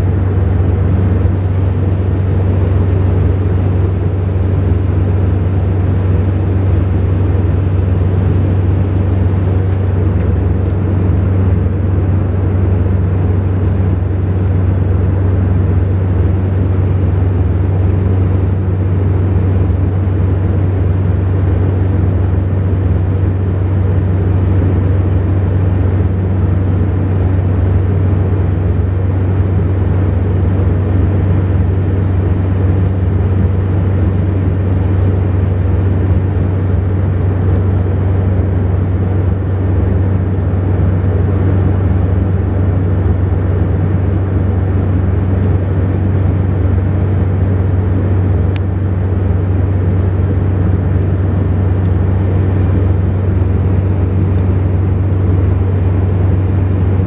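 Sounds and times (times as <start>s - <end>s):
propeller drone hum: 0.0s - 57.0s.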